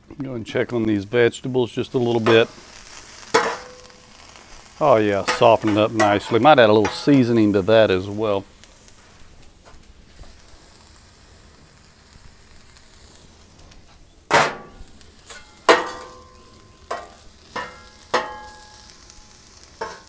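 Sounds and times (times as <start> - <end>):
food sizzling on a griddle: 0.4 - 20.0
metal spatula clanking on griddle: 3.2 - 4.1, 5.2 - 7.2, 14.3 - 19.0, 19.8 - 20.0.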